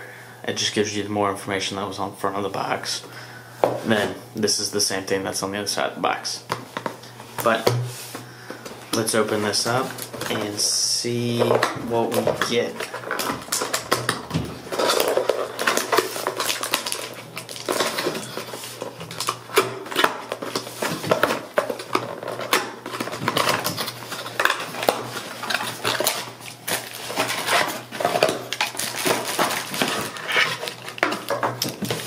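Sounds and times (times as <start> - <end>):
packaging rustling: 11.2 - 32.0.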